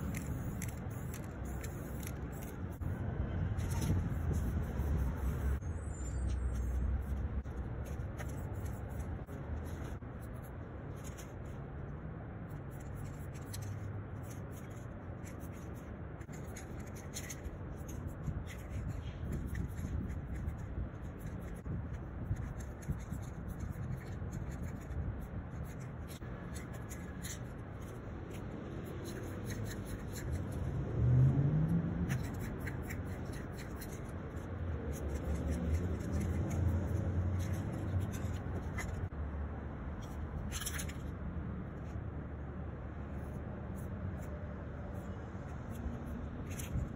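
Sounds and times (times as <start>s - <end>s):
spray paint can hissing: 0.0s - 2.9s, 3.6s - 5.6s
low rumble of city traffic: 0.0s - 46.9s
vehicle accelerating past: 30.7s - 32.0s.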